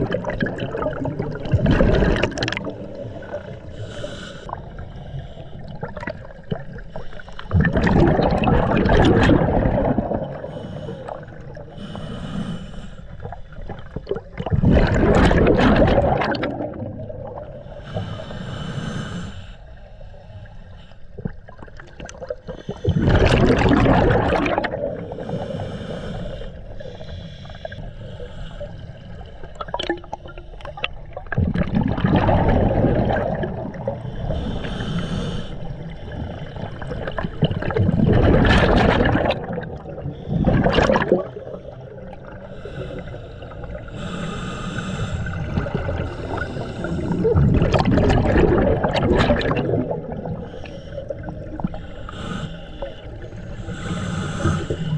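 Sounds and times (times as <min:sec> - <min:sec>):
gurgling exhaled bubbles underwater: 0:00.0 - 0:12.0, 0:13.0 - 0:18.3, 0:21.1 - 0:54.9
regulator inhalation hiss: 0:25.2 - 0:28.8, 0:34.2 - 0:35.7, 0:42.4 - 0:45.5, 0:51.8 - 0:54.9.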